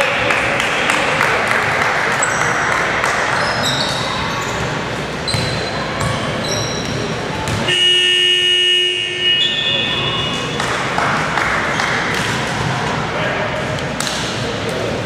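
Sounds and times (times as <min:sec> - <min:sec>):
voices in a hall: 0:00.0 - 0:15.0
sneakers squeaking: 0:02.1 - 0:12.8
basketball bouncing: 0:05.3 - 0:07.9.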